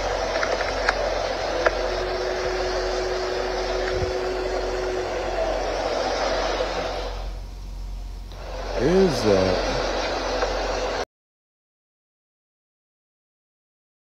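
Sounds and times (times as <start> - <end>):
truck engines idling: 0.0 - 7.6, 8.2 - 11.0
steady rushing drone: 0.0 - 11.0.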